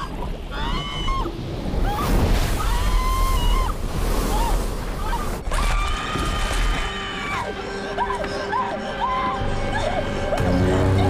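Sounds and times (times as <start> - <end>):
rushing bubbling water: 0.0 - 7.0.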